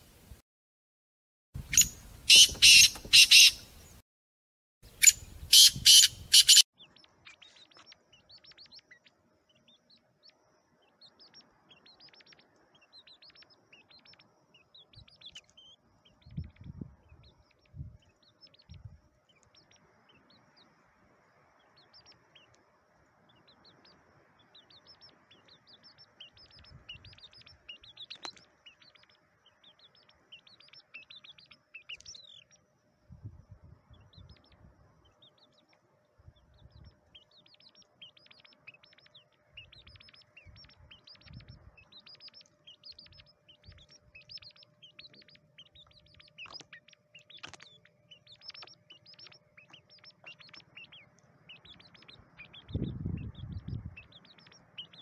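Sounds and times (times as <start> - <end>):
harsh partridge calls: 1.6 - 3.8, 4.9 - 9.8, 23.4 - 32.6, 36.4 - 55.0
high short bird chirps: 1.7 - 4.0, 4.9 - 9.0.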